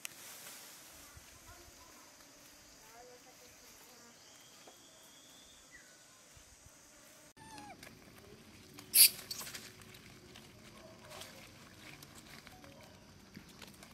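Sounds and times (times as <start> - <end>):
monkey harsh call: 7.4 - 7.8, 8.9 - 9.5
faint animal calls and clicks: 7.4 - 13.9.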